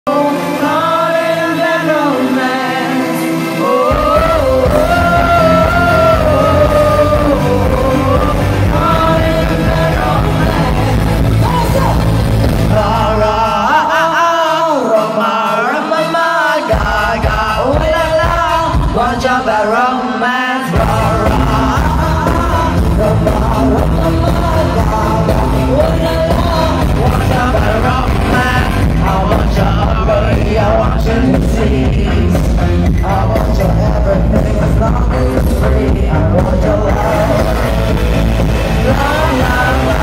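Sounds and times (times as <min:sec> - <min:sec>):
woman singing live pop: 0:00.1 - 0:38.0, 0:38.6 - 0:40.0
heavy bass beat: 0:03.9 - 0:13.5, 0:20.8 - 0:40.0.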